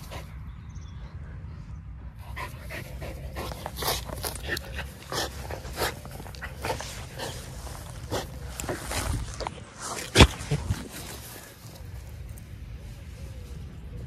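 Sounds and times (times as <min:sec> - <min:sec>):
steady low rumble: 0:00.0 - 0:14.0
dog sniffing: 0:02.3 - 0:11.5.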